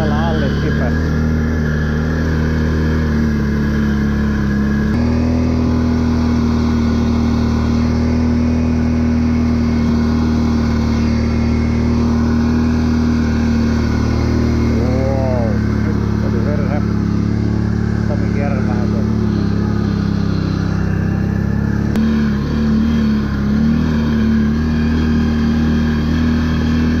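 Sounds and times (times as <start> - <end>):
atv engine running: 0.0 - 27.0.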